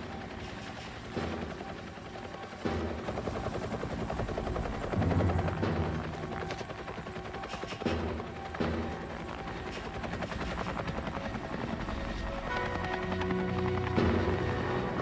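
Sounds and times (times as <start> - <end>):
helicopter flying overhead: 0.0 - 15.0.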